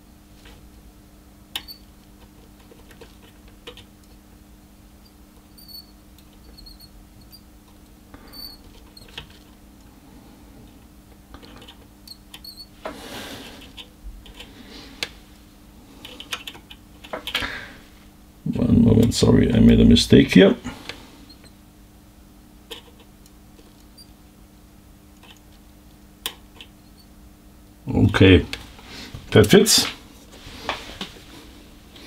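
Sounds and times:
steady low hum: 0.0 - 32.0
small clicks and scrapes: 1.6 - 4.2, 5.0 - 9.6, 11.3 - 15.2, 16.0 - 17.4, 22.7 - 24.0, 25.2 - 25.6
short high squeaks: 5.5 - 7.4, 8.3 - 9.2, 12.1 - 12.7.

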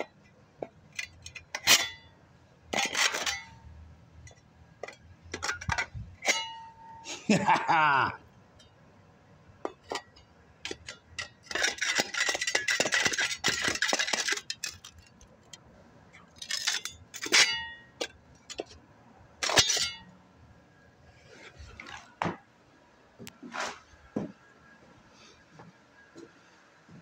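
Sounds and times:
metal tools scraping on concrete: 0.9 - 2.1, 2.7 - 3.8, 4.8 - 7.1, 9.6 - 15.6, 16.2 - 18.8, 19.4 - 20.2.

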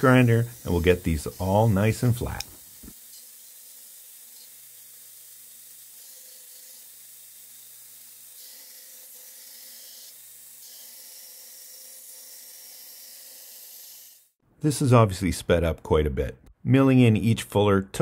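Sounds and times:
belt grinder hiss: 0.0 - 14.3.

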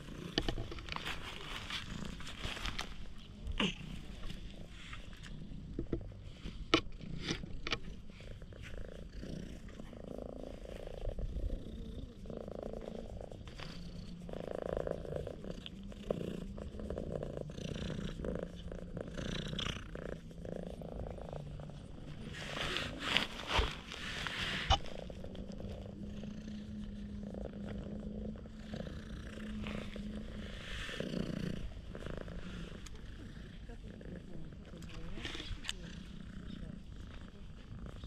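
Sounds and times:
noisy rustle: 0.0 - 5.3, 17.7 - 38.0
cat purring: 0.0 - 38.0.

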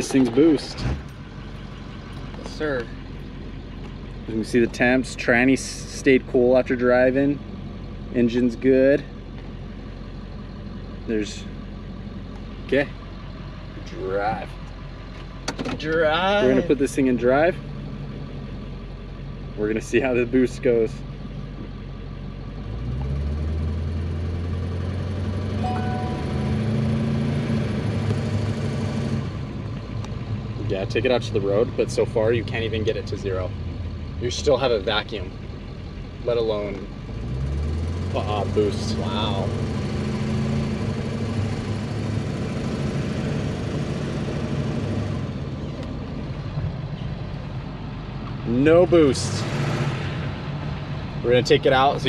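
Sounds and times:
diesel engine droning: 0.0 - 52.0.

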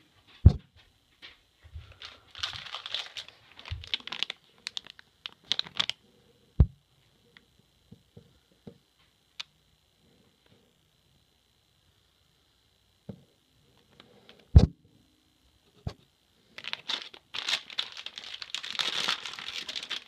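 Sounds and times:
metallic bag crinkling: 1.9 - 6.0, 16.6 - 20.0.

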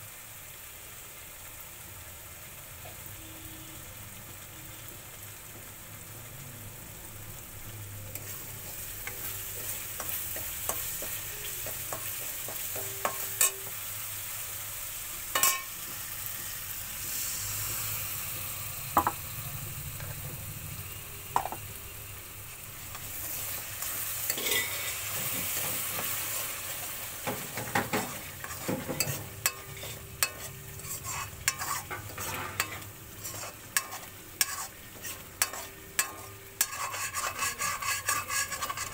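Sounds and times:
paste sizzling in oil: 0.0 - 38.9
ladle scraping wok: 8.1 - 14.4, 15.2 - 20.7, 21.3 - 21.6, 22.8 - 38.9.

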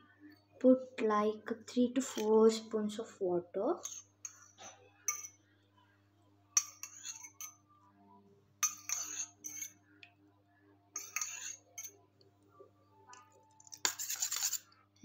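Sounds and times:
spoon clinking in metal tumbler: 5.1 - 5.4, 8.6 - 9.8, 11.0 - 12.0.

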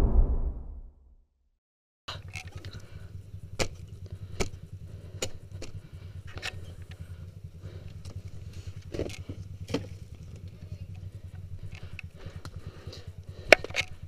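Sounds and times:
motorcycle engine running: 2.1 - 14.0
sharp knocks on dirt track: 3.6 - 4.6, 8.8 - 10.2.

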